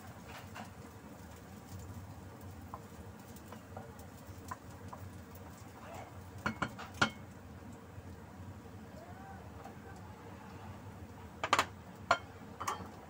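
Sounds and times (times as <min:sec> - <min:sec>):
wooden spoon stirring in frying pan: 0:00.0 - 0:07.5.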